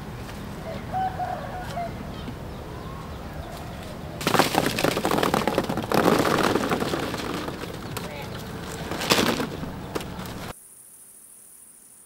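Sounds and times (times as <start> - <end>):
apples clattering into basket: 4.2 - 10.5.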